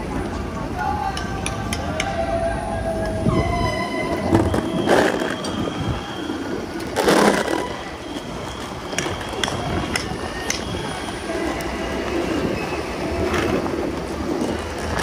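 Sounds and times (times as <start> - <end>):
street traffic noise: 0.0 - 15.0
longboard wheels rolling on pavement: 2.2 - 15.0.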